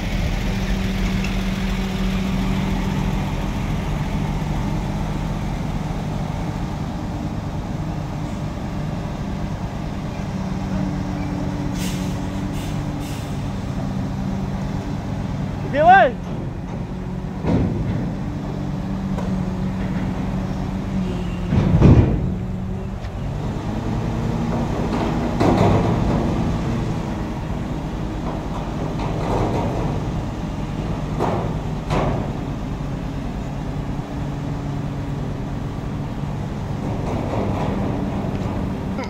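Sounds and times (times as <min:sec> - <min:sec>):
heavy diesel engines idling: 0:00.0 - 0:39.0.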